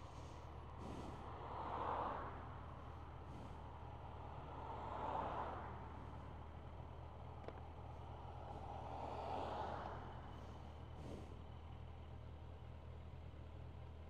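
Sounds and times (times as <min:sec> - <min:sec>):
low engine hum: 0:00.0 - 0:14.0
vehicles passing: 0:00.0 - 0:14.0.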